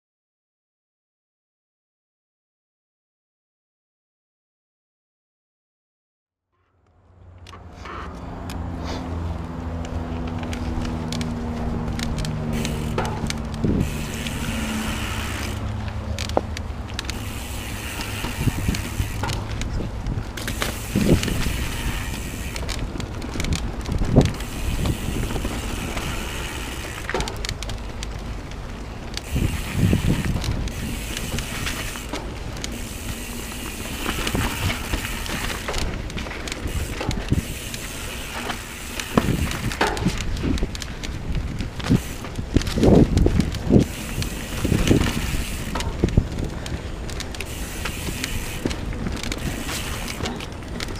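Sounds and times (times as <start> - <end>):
bike tyres and wind rumble: 7.0 - 50.9
bike knocks and rattles: 9.4 - 50.9
freehub ticking: 9.7 - 50.9.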